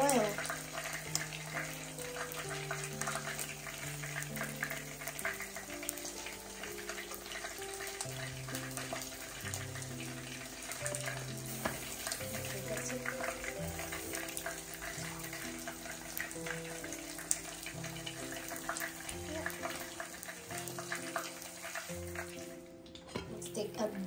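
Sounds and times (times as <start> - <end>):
food sizzling on stove: 0.0 - 24.0
gentle background music: 0.0 - 24.0.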